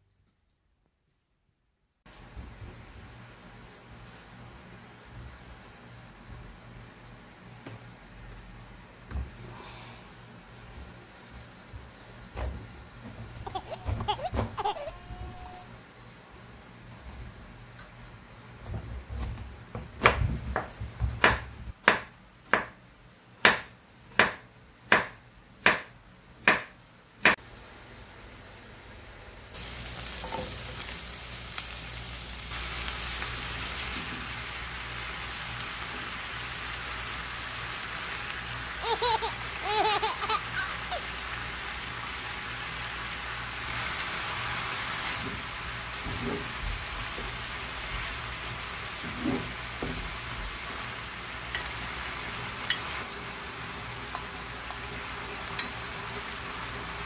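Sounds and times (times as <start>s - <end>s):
knife chopping on cutting board: 18.6s - 22.8s, 23.4s - 26.7s
food sizzling in hot oil: 29.5s - 57.0s.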